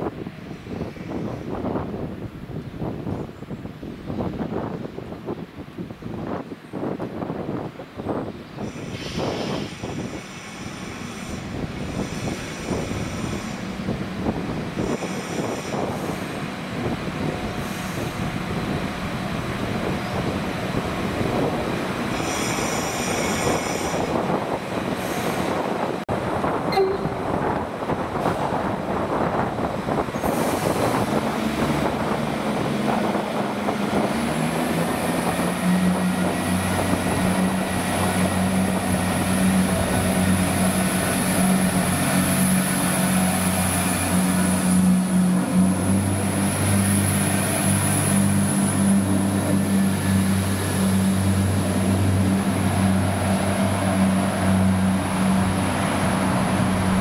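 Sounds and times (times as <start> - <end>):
train wheels rumbling on rails: 6.2 - 57.0
diesel engines droning: 8.6 - 57.0
high-pitched wheel squeal: 26.7 - 27.2.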